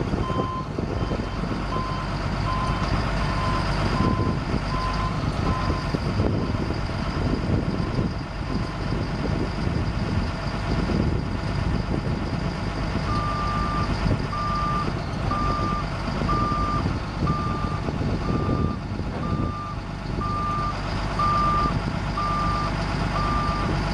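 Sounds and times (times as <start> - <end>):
diesel truck engine running: 0.0 - 23.9
reverse alarm beeping: 0.2 - 9.8, 13.0 - 23.7.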